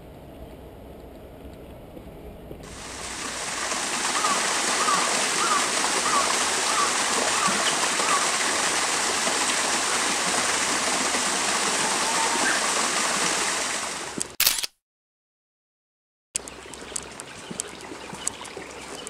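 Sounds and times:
waterfall splashing into a pool: 0:02.6 - 0:14.4.

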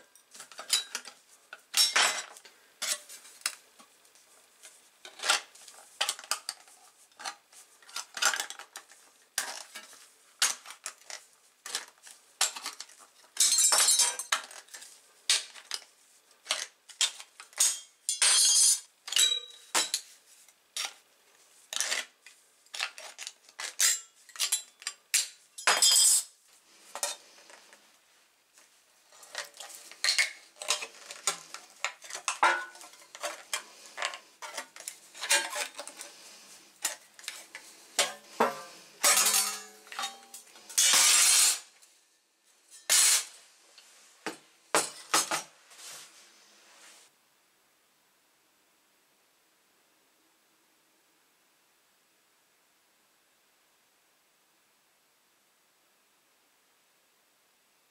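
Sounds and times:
tin snips cutting sheet metal: 0:40.8 - 0:41.6, 0:42.8 - 0:43.3.

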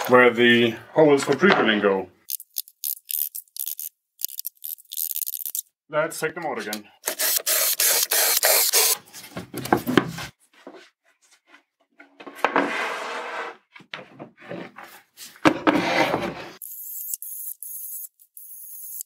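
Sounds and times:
wooden boards rubbing and scraping: 0:12.2 - 0:16.6.

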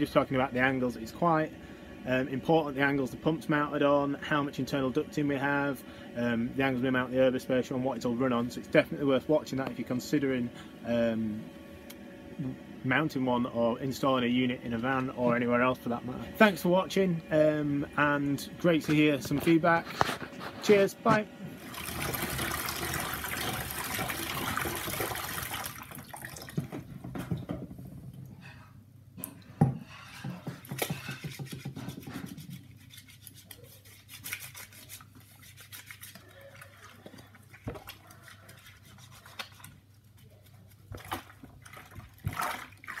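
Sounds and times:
water running into sink: 0:21.6 - 0:27.3
splashing and sloshing water: 0:21.6 - 0:27.5, 0:35.5 - 0:43.0.

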